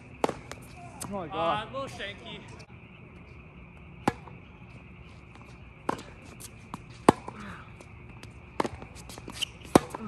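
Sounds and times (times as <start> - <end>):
rackets striking tennis ball: 0.1 - 1.3, 4.0 - 4.4, 8.0 - 10.0.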